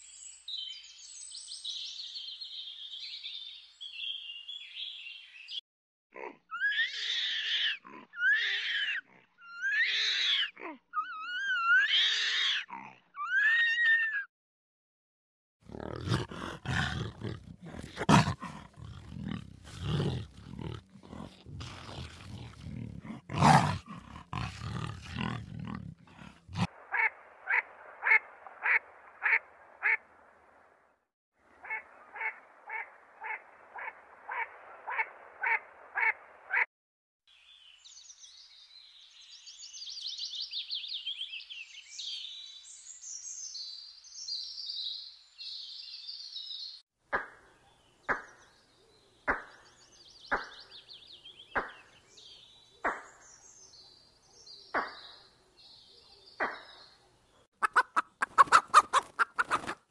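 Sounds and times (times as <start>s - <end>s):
high wavering animal calls: 6.5s - 14.3s
leopard growling: 15.6s - 26.7s.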